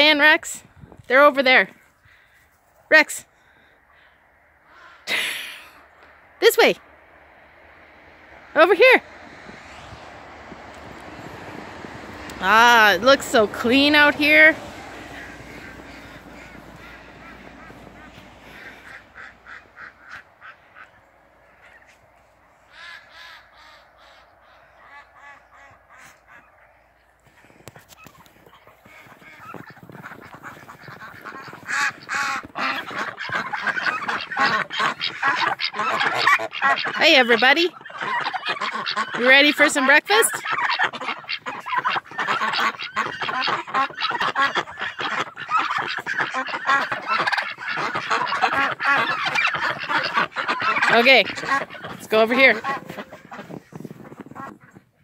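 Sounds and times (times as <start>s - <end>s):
birds making harsh calls: 13.6s - 54.9s.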